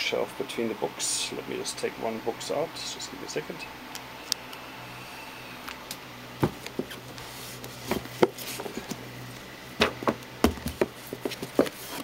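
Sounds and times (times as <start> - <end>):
books scraping on wooden shelf: 6.4 - 9.0, 10.7 - 12.0.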